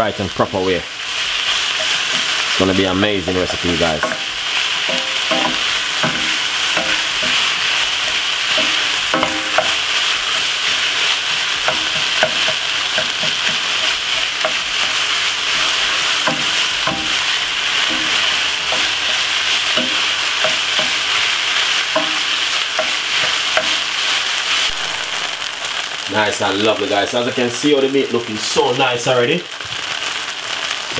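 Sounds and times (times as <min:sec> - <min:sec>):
meat sizzling in a frying pan: 0:00.0 - 0:30.9
wooden spoon scraping a pan: 0:01.0 - 0:24.7.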